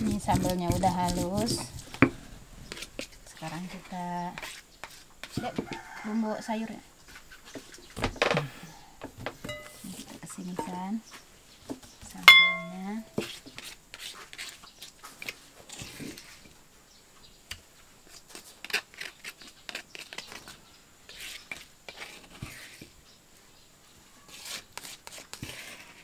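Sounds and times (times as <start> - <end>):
spatula scraping stone mortar: 0.0 - 5.6, 12.2 - 16.5, 18.1 - 23.0, 24.3 - 26.0.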